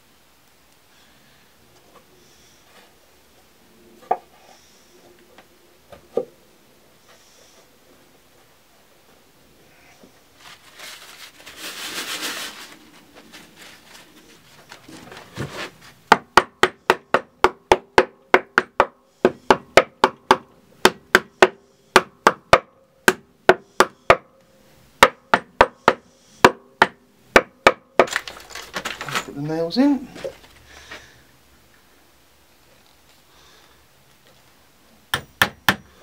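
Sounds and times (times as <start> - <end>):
hammer driving nails into wood: 35.1 - 35.9.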